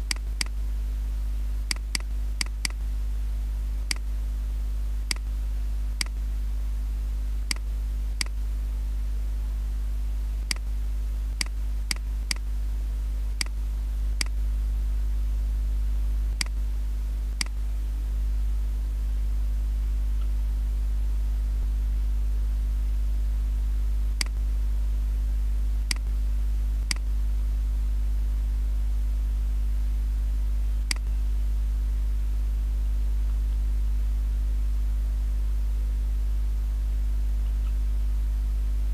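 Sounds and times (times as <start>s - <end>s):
electrical hum with hiss: 0.0s - 38.9s
computer mouse clicking: 0.1s - 0.6s, 1.7s - 2.8s, 7.5s - 8.4s.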